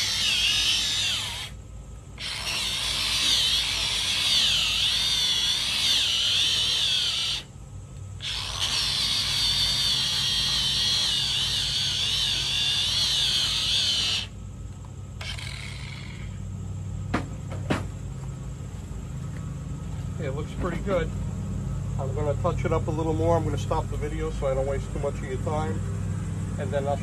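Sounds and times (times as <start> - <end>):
disc grinder whining: 0.0 - 1.6, 2.2 - 7.5, 8.2 - 14.3.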